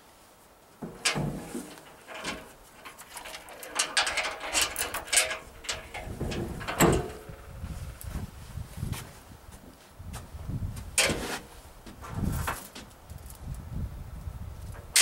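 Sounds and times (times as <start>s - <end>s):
loud metal clunk: 0.8s - 7.5s
metal creaking and clanking: 0.8s - 8.0s, 14.8s - 15.0s
chains rattling: 1.9s - 7.5s.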